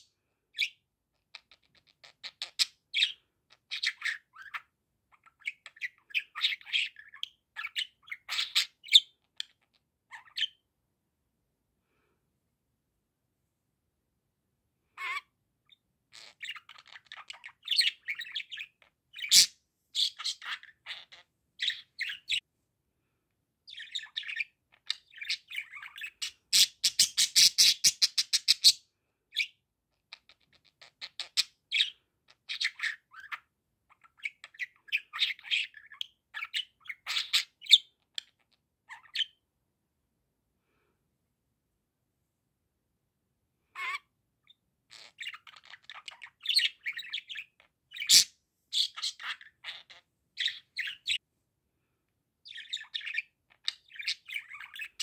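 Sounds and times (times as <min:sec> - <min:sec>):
budgerigar chirping and chattering: 0:00.6 - 0:10.6, 0:15.0 - 0:22.4, 0:23.6 - 0:39.4, 0:43.8 - 0:51.2, 0:52.4 - 0:55.0.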